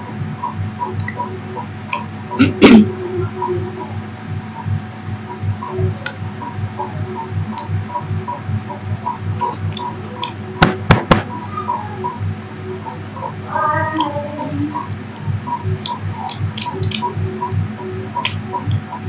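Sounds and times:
pulsing hum: 0.0 - 19.0
sharp clicks: 15.7 - 17.2.

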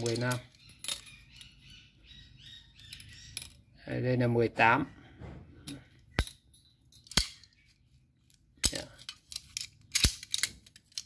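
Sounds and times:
pipe wrenches clinking: 0.0 - 1.5.

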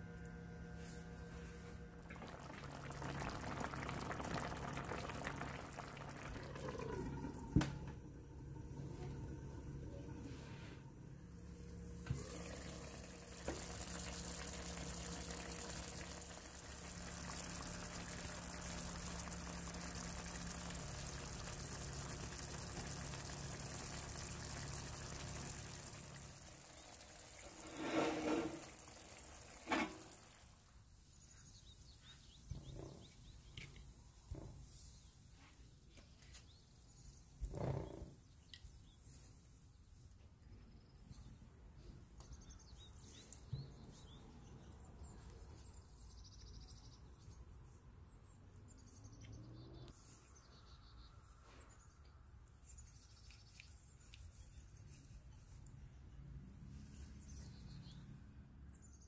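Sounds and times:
running water rushing: 2.0 - 7.9, 12.1 - 30.5.

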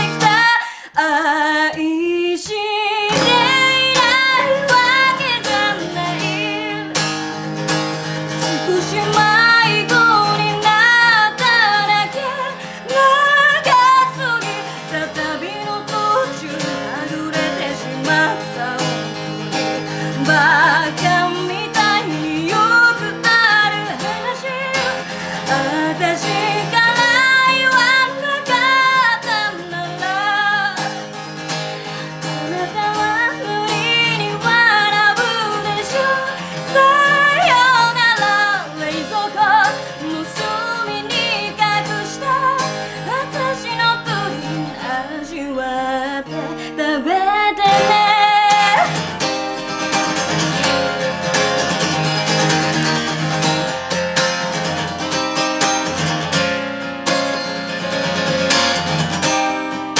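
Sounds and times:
acoustic guitar strumming: 0.0 - 0.8, 3.0 - 59.9
woman singing a ballad: 0.0 - 52.7.

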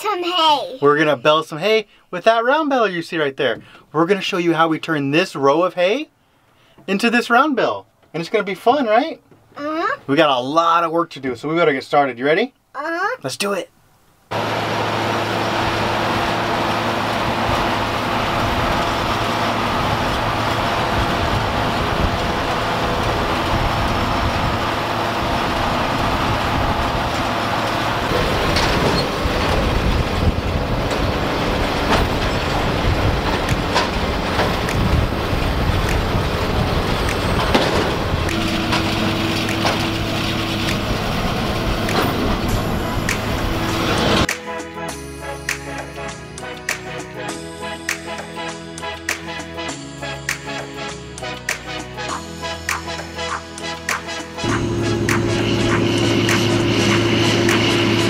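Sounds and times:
tractor engine droning: 14.3 - 44.3, 54.4 - 58.0.

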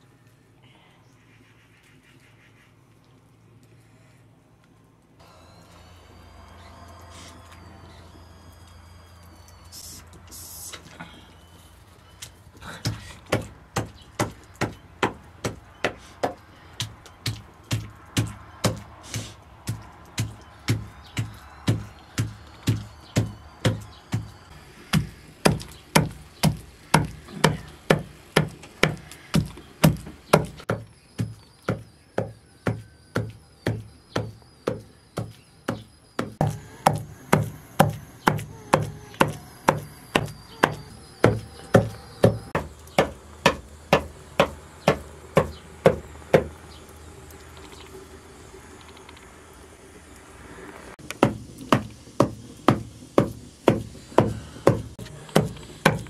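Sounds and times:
cleaver chopping meat on wood: 12.9 - 46.6, 51.0 - 56.0.

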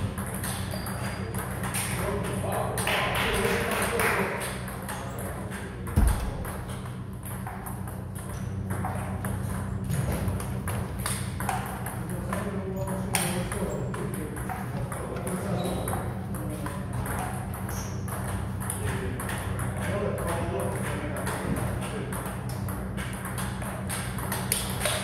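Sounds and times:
steady low hum: 0.0 - 25.0
loud thud: 6.0 - 6.8.

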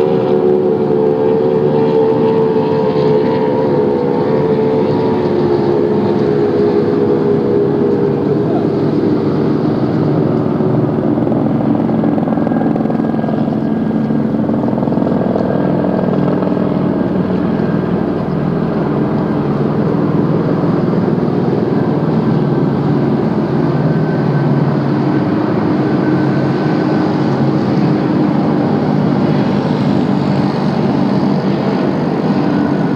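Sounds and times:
boat engines droning: 0.0 - 32.9
rushing noise: 0.0 - 32.9.

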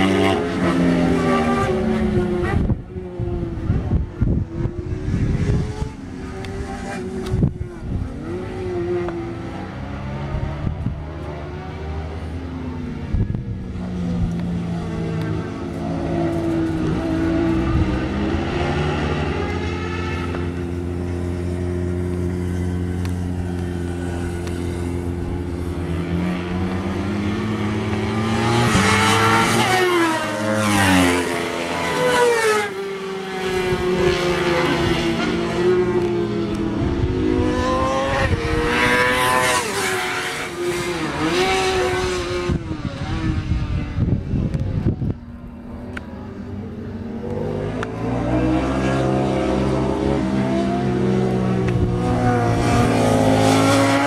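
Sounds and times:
motorcycles passing at speed: 0.0 - 54.0.

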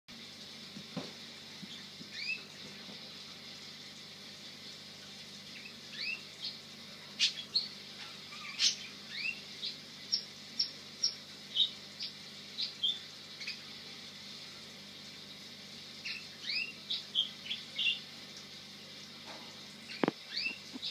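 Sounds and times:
canary chirping: 1.7 - 2.4, 5.5 - 6.6, 7.2 - 13.6, 16.0 - 18.1, 19.9 - 20.9.

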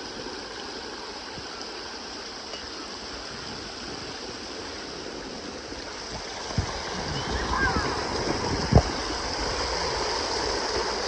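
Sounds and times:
creek water rushing: 0.0 - 11.0.

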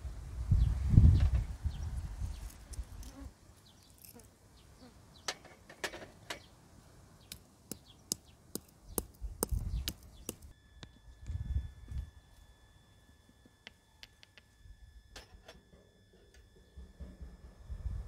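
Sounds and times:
low rumbling noise: 16.5 - 18.0.

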